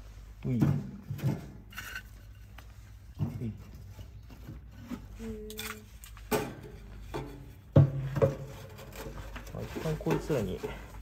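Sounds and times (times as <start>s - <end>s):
firewood knocking against metal stove: 6.3s - 8.6s.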